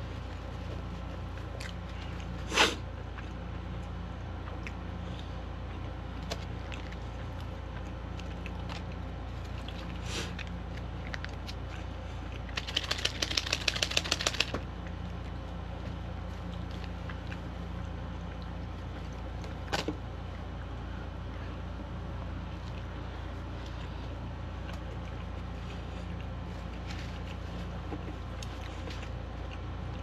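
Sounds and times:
faint chewing: 0.0s - 30.0s
low room hum: 0.0s - 30.0s
plastic packet shaken: 12.5s - 14.6s.

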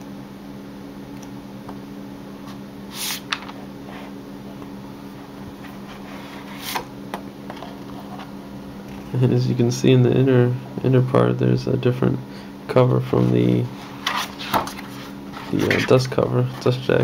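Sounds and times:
steady low hum: 0.0s - 17.0s
book pages turning: 13.1s - 16.8s.

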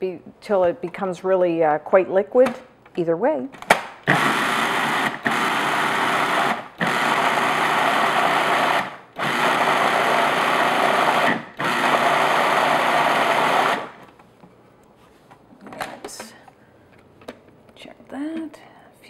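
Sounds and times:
food processor motor and blade: 4.1s - 14.0s.

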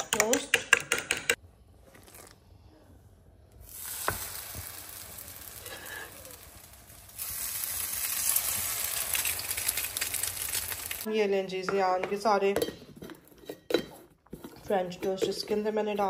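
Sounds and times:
french toast sizzling in a pan: 3.6s - 11.1s.

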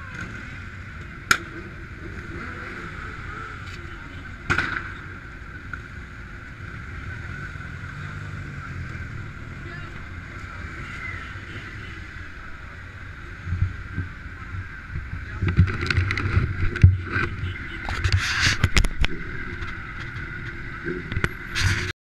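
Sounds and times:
camera rubbing: 15.5s - 21.9s.

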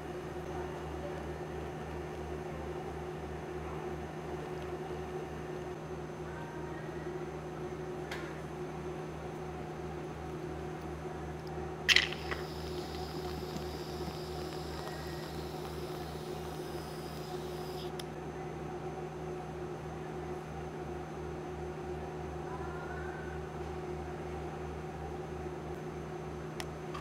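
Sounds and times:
cream dispenser spraying: 11.9s - 18.0s
low hum: 11.9s - 18.0s.

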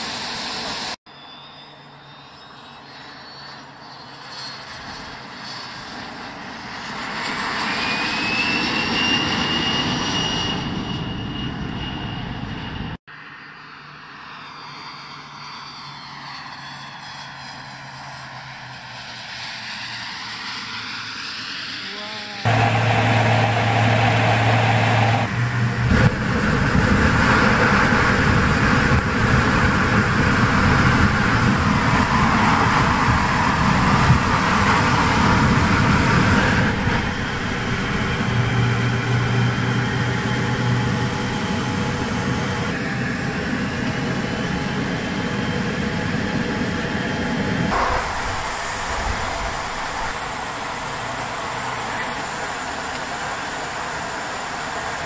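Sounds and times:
jet engines running: 0.0s - 55.0s
water rushing along hull: 22.5s - 42.6s, 47.7s - 55.0s.

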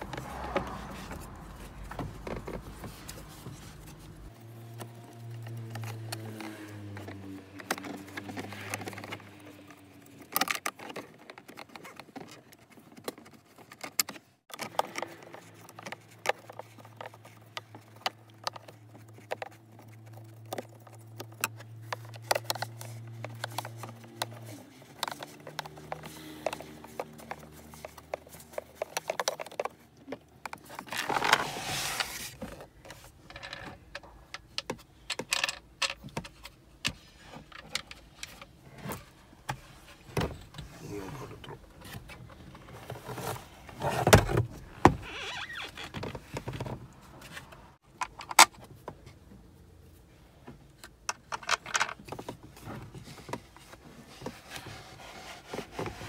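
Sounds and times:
plastic parts clicking and rattling: 0.0s - 49.2s, 50.5s - 56.0s
rustling scrape: 30.5s - 33.5s, 52.6s - 56.0s.

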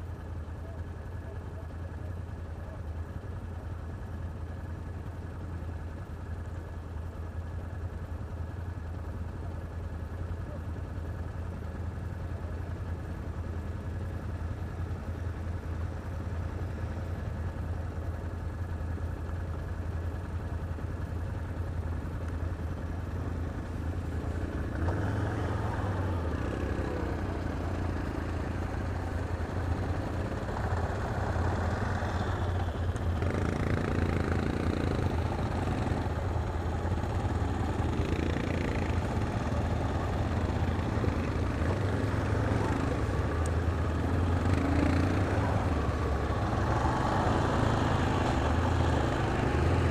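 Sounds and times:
atv engines idling and revving: 0.0s - 49.9s.

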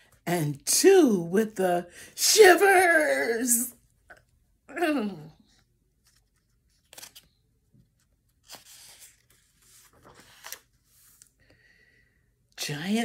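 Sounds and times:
book page turning: 5.9s - 11.4s.

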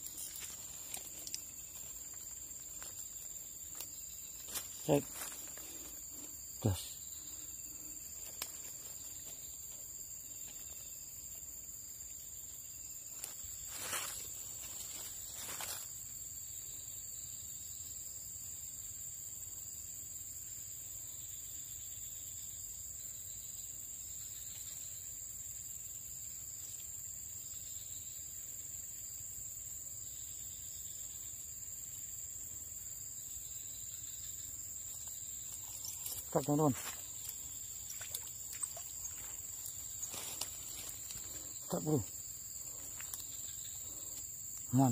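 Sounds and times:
insects chirring: 0.0s - 44.9s.

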